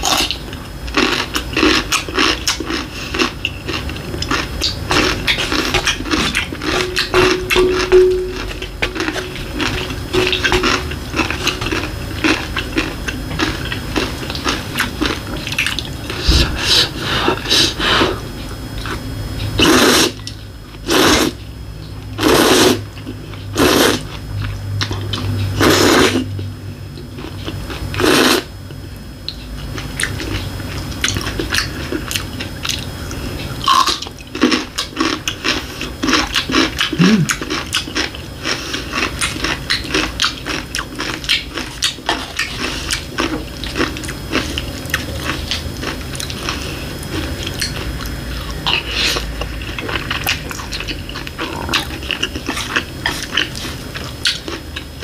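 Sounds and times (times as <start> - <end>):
chewing: 0.0 - 17.8, 29.3 - 55.0
loud noodle slurps: 19.6 - 20.2, 20.9 - 21.4, 22.2 - 22.8, 23.6 - 24.0, 25.6 - 26.3, 28.0 - 28.5.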